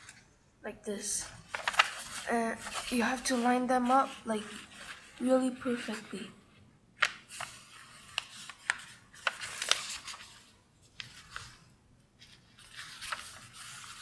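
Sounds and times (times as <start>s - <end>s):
paper rustling and crinkling: 1.2s - 6.3s, 7.0s - 14.0s
sharp paper crackles: 1.3s - 6.3s, 7.0s - 14.0s.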